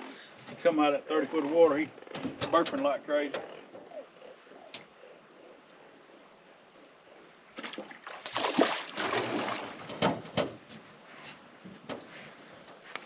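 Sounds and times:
water splashing beside a boat: 7.5s - 12.5s
sharp knocks: 9.8s - 10.6s.

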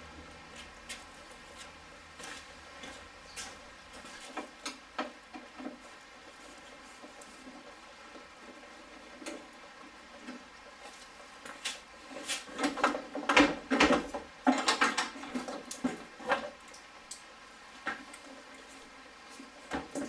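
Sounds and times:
plastic bumper clicks and rattles: 12.6s - 15.9s.

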